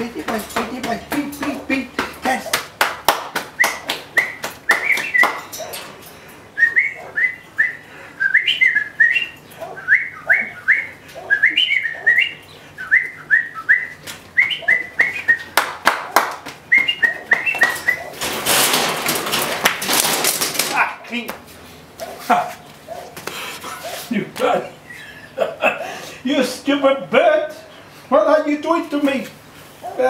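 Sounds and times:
hand clapping: 0.2 - 5.8, 14.1 - 18.2, 19.6 - 20.2
rhythmic whistling tune: 3.6 - 5.4, 6.6 - 15.7, 16.7 - 18.1.

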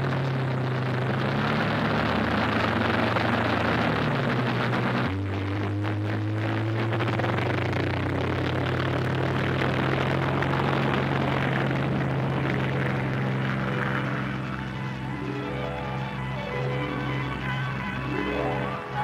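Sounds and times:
piston aircraft engines droning: 0.0 - 19.0
film music: 12.2 - 19.0.

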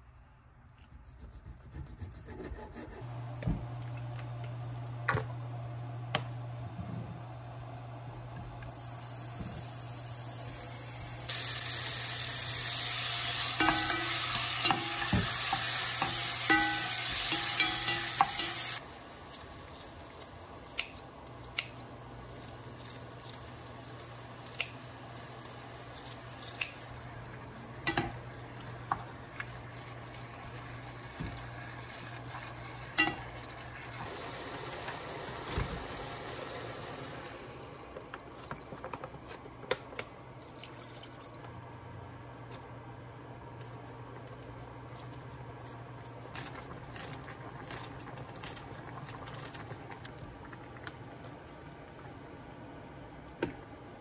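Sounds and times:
food sizzling in frying pan: 7.4 - 27.1, 27.8 - 37.6
utensil clinking against pan: 16.0 - 18.7.

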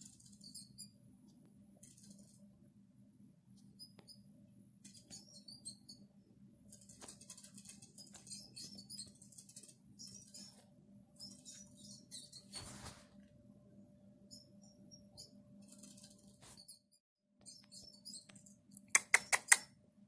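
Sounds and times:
mouse squeaks from tv speaker: 0.0 - 1.0, 3.7 - 6.1, 6.7 - 13.0, 14.3 - 19.8
low steady hum: 0.0 - 8.2, 12.4 - 16.6.

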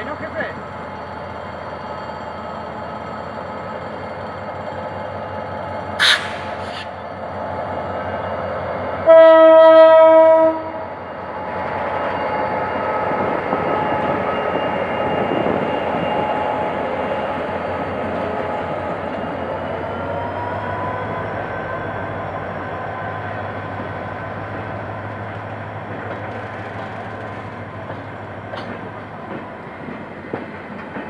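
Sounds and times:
train wheels on rails: 0.0 - 9.1, 11.2 - 31.0
locomotive engine: 0.0 - 9.2, 10.7 - 31.0
air hiss: 6.0 - 7.0
train horn blast: 9.0 - 10.8.

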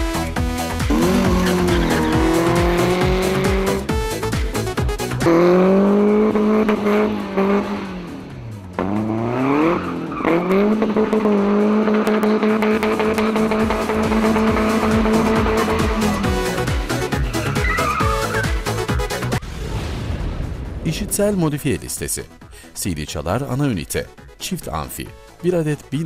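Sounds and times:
car engine at high revs: 0.9 - 4.0, 5.0 - 17.4
tyre squeal: 17.1 - 18.7.

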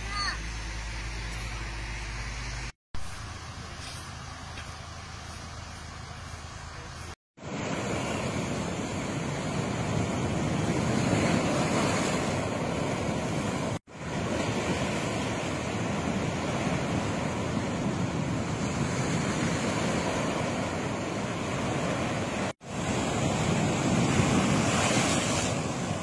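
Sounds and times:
sea surf breaking on rocks: 7.4 - 26.0
wind gusting on microphone: 7.4 - 26.0.

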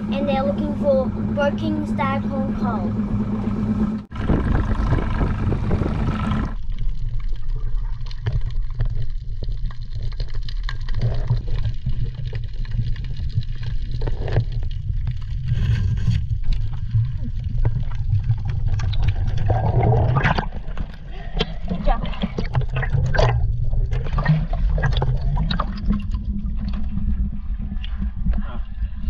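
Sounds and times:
motorboat engine running: 0.0 - 6.7
wind: 0.0 - 9.8
underwater rumble of water: 0.0 - 29.0
underwater clicks and pops: 17.6 - 26.9.

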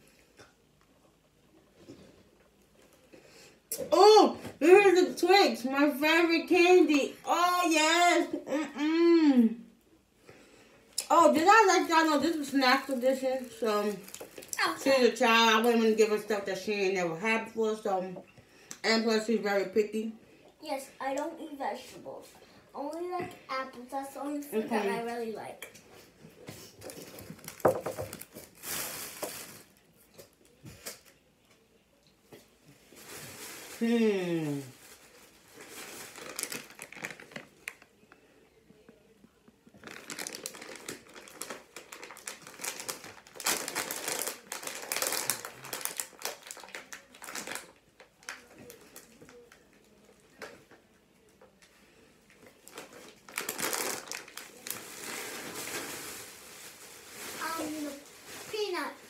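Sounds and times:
plastic packaging crinkling: 11.2 - 16.0, 26.8 - 31.1, 32.9 - 33.8, 34.6 - 38.0, 39.7 - 50.6, 52.3 - 59.0.

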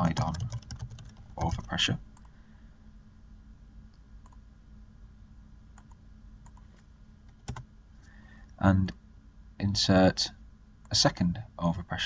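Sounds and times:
low steady hum: 0.0 - 12.0
keyboard and mouse clicks: 5.8 - 7.7.

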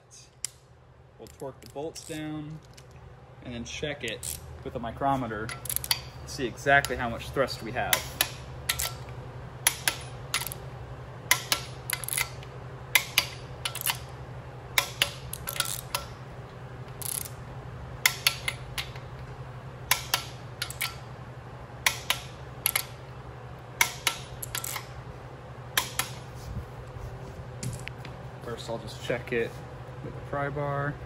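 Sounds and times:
steady low hum: 0.0 - 31.0
torque wrench ratcheting clicks: 4.0 - 4.4, 5.5 - 6.1, 9.6 - 10.6, 11.3 - 14.1, 14.8 - 16.1, 16.9 - 17.4, 21.8 - 22.9, 23.8 - 24.8.

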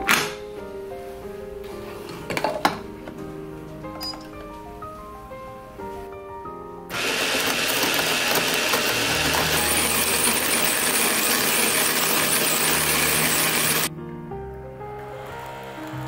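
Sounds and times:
coffee grinder grinding beans: 6.9 - 13.9.

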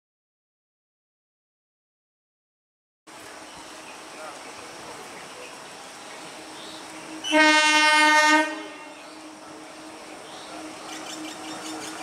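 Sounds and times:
faint rail noise: 3.1 - 12.0
steady low hum: 3.1 - 12.0
train horn blast: 7.2 - 9.4.

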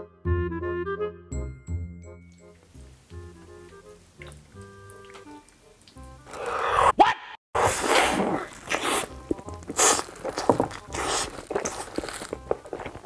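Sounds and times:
background music with steady beat: 0.0 - 6.3
loud chewing and mouth noises: 4.2 - 6.8, 7.6 - 13.0.

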